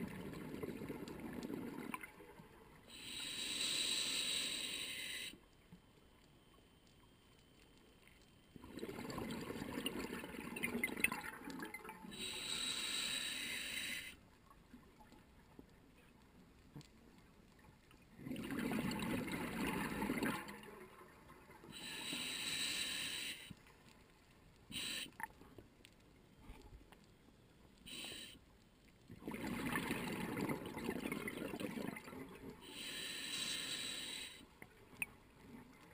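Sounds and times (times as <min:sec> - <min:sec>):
regulator inhalation hiss: 0:02.9 - 0:05.4, 0:12.1 - 0:14.2, 0:21.7 - 0:23.6, 0:24.7 - 0:25.2, 0:27.8 - 0:28.5, 0:32.6 - 0:34.6
exhaled bubbles rushing: 0:08.6 - 0:11.9, 0:18.2 - 0:20.6, 0:29.2 - 0:32.3.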